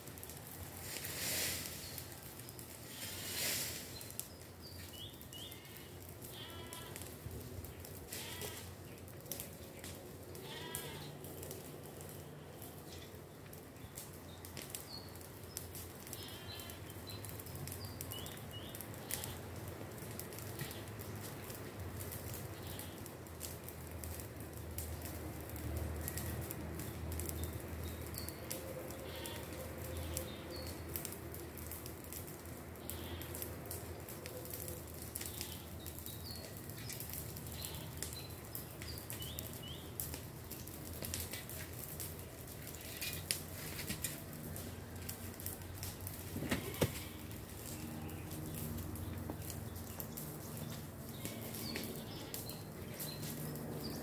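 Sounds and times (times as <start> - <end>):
low outdoor background: 0.0 - 54.0
farm animals bleating: 2.8 - 3.3, 5.3 - 7.2, 7.9 - 8.8, 10.3 - 11.4, 16.0 - 17.0, 18.9 - 19.6, 22.6 - 23.1, 28.9 - 30.4, 32.8 - 33.4, 35.3 - 35.8, 37.4 - 38.4, 46.4 - 48.4, 50.6 - 53.0.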